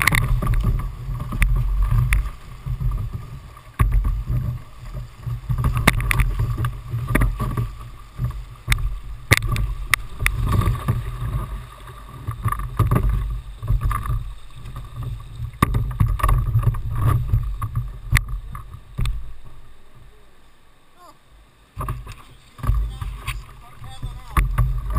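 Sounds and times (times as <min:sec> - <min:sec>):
paddle knocking on kayak: 0:00.0 - 0:11.6, 0:12.2 - 0:19.5, 0:21.8 - 0:24.9
whitewater rushing: 0:18.5 - 0:24.9.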